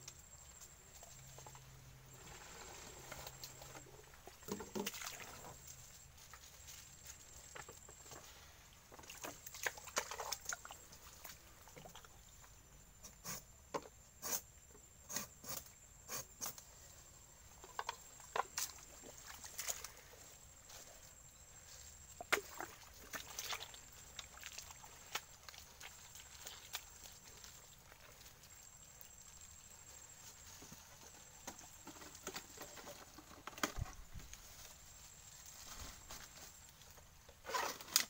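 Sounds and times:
small sloshes: 3.4 - 6.0, 7.5 - 12.4, 18.5 - 20.6, 22.1 - 28.8.

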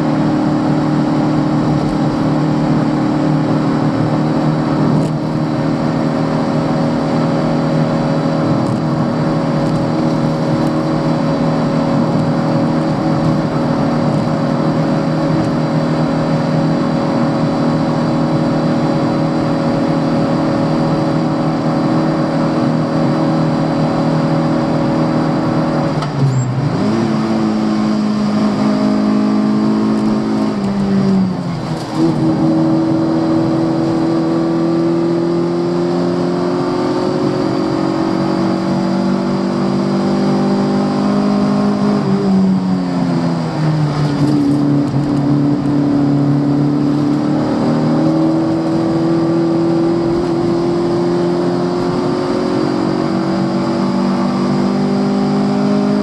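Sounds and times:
car engine revving: 0.0 - 56.0.

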